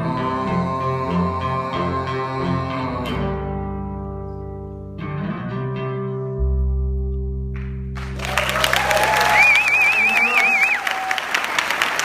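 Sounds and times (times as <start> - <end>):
electric guitar chords: 0.0 - 10.5
deep low note: 2.7 - 8.6.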